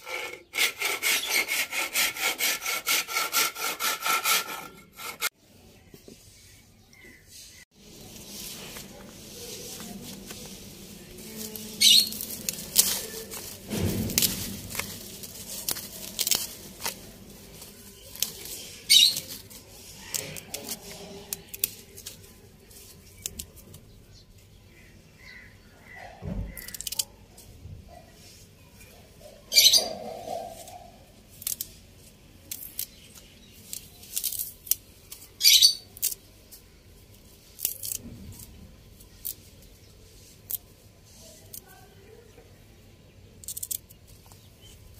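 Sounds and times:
leaves rustling: 7.8 - 23.8
crisp stalks snapping: 11.4 - 19.5, 20.1 - 22.2, 37.5 - 39.4, 43.4 - 44.4.

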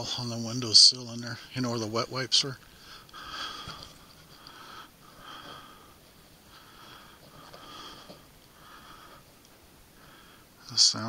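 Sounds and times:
soft even breathing: 2.6 - 10.7.

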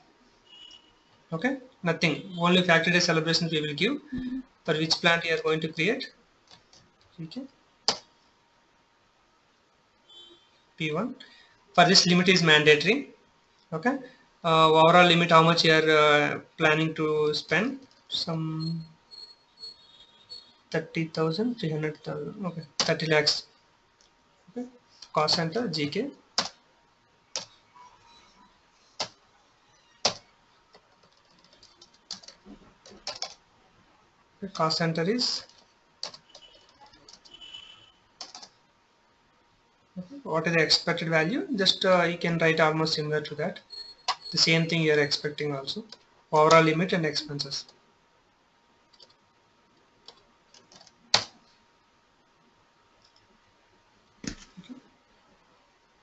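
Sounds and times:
keyboard keys clicking: 30.0 - 33.4, 35.4 - 37.3, 38.2 - 38.5.

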